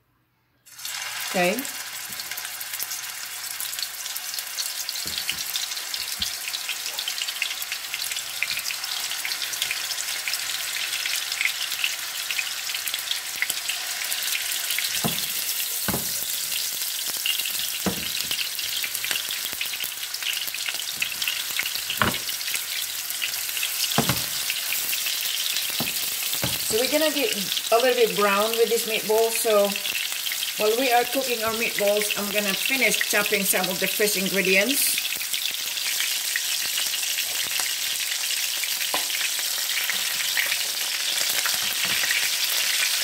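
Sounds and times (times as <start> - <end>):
meatballs sizzling in oil: 0.7 - 43.0
meatballs knocking in pan: 5.0 - 5.6, 14.8 - 16.6, 17.4 - 19.3, 20.9 - 22.7, 23.8 - 24.8, 25.6 - 26.9.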